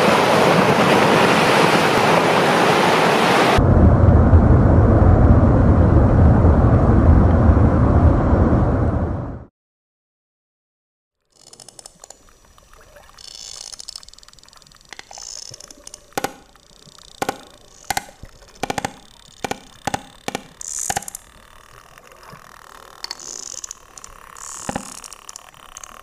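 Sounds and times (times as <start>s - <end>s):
whale clicks underwater: 11.4s - 26.0s
bubbling rushing water: 11.9s - 26.0s.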